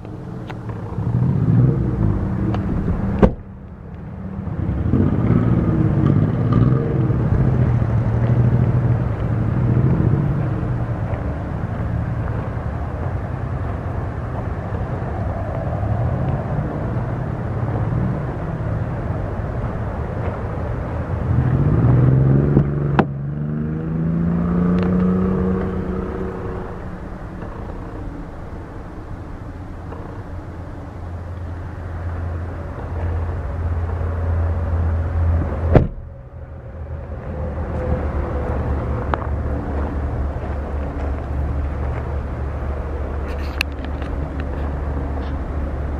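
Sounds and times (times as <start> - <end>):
vehicle engine revving: 0.0 - 45.9.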